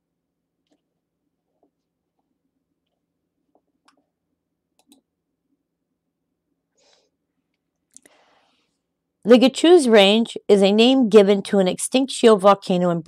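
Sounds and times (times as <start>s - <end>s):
faint computer mouse clicks: 4.8s - 5.0s.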